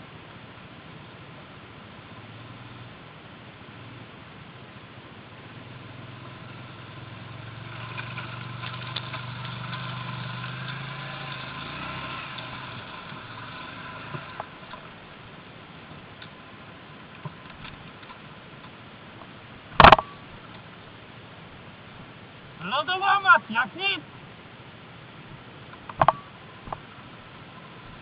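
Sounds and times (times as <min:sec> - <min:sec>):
quad engine running: 0:05.4 - 0:16.4, 0:19.8 - 0:20.2
sharp knocks: 0:19.8 - 0:20.1.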